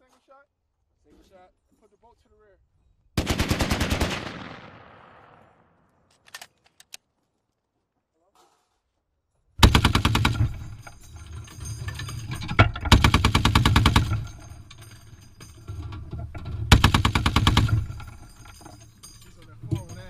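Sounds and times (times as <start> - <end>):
heavy machine gun bursts: 3.2 - 5.0, 9.6 - 15.7, 16.4 - 18.7.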